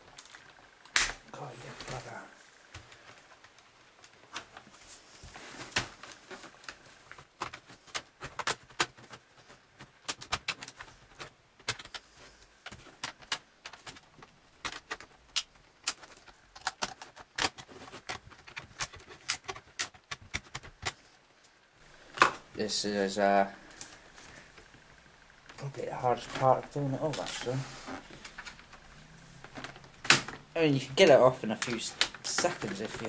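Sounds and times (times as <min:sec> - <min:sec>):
plastic case clicking and snapping: 0:09.8 - 0:12.0, 0:12.7 - 0:21.0.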